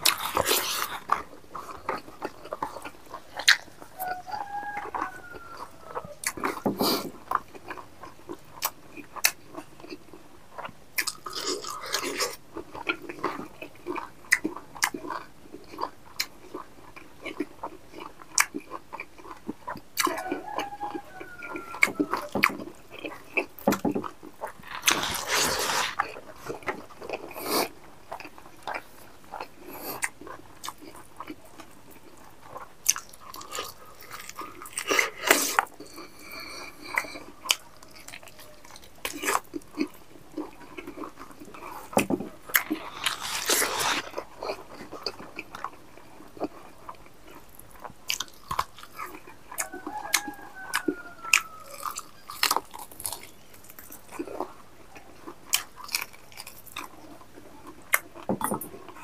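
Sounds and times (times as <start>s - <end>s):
close chewing with mouth clicks: 0.0s - 59.0s.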